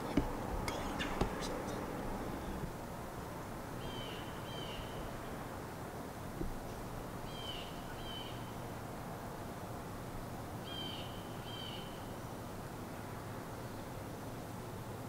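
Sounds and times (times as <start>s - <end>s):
bird calling: 0.0s - 2.8s
background hiss: 0.0s - 15.0s.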